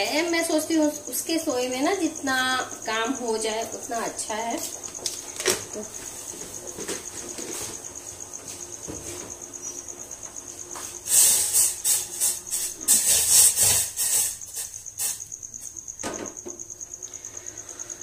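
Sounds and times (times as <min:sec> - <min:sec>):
cricket chirping: 0:00.0 - 0:18.0.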